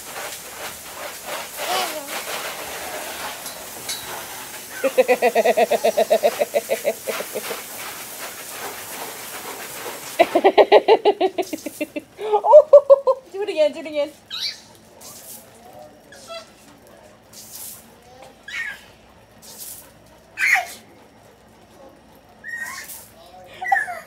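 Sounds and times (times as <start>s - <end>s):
hose spraying water: 0.0s - 21.0s, 22.5s - 24.0s
person laughing: 4.8s - 7.6s, 10.2s - 13.3s.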